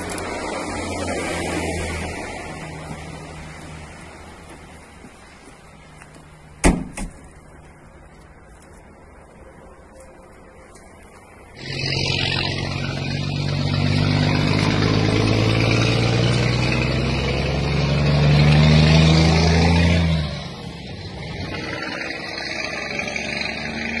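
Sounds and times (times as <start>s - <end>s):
road noise: 0.0s - 24.0s
vehicle engine running: 10.9s - 24.0s.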